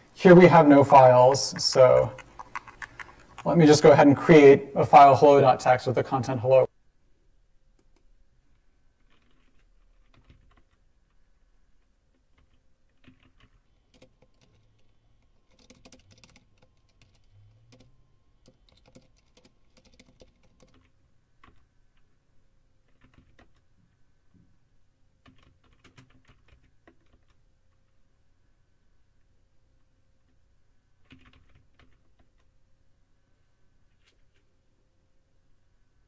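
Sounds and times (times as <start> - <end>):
faint keyboard typing: 0.8 - 3.7, 7.7 - 24.5, 25.2 - 28.1, 29.8 - 32.6.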